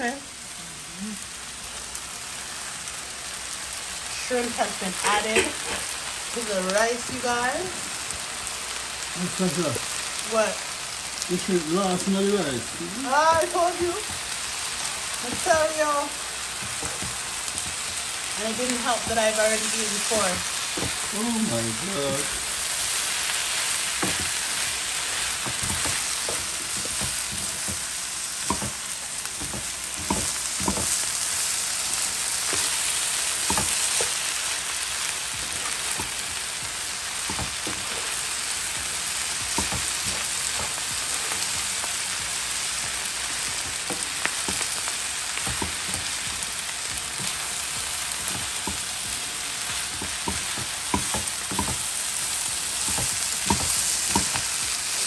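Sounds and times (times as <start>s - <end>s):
fried rice sizzling in a skillet: 0.0s - 55.0s
spatula scraping and tapping pan: 23.5s - 31.1s, 31.9s - 34.2s, 35.3s - 54.8s.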